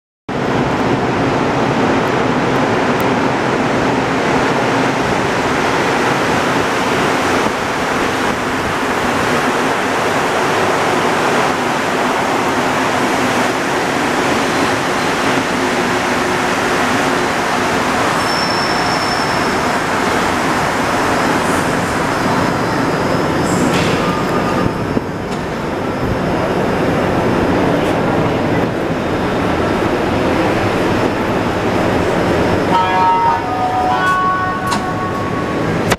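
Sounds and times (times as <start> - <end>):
subway train pulling into station: 0.3 - 35.9
high-pitched tone: 32.7 - 35.9.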